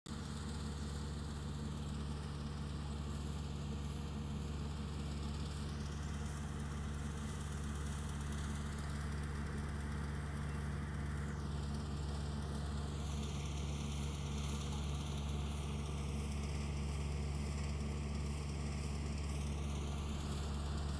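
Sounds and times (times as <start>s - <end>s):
harvester engine running: 0.2s - 20.9s.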